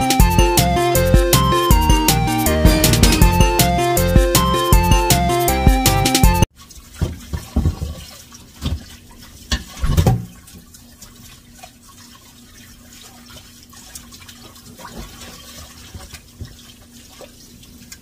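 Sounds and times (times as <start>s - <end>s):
tap running into sink: 7.0s - 8.0s.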